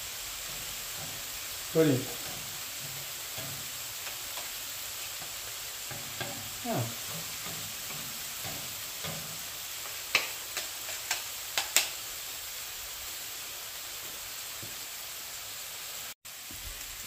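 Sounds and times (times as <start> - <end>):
food sizzling on a griddle: 0.0 - 17.0
spatulas clacking on steel: 0.4 - 12.0.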